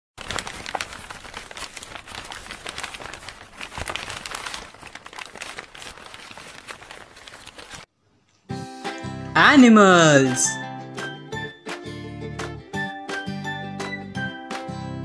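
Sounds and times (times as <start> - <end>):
dense crackling crumpling noise: 0.2 - 7.9.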